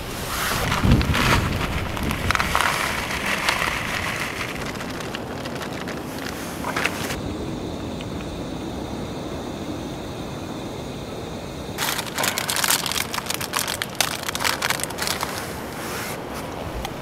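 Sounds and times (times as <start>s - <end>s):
plastic wrapper crinkling and tearing: 0.6s - 7.2s, 11.8s - 15.6s.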